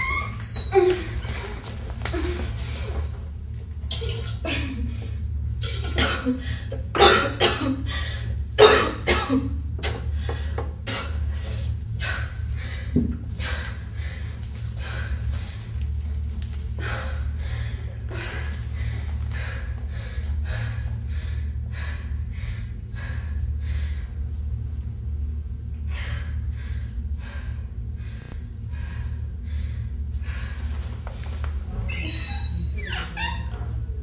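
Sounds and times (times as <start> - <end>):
low hum: 0.0 - 34.0
woman breathing heavily: 6.3 - 7.0, 7.8 - 8.5, 9.8 - 31.8.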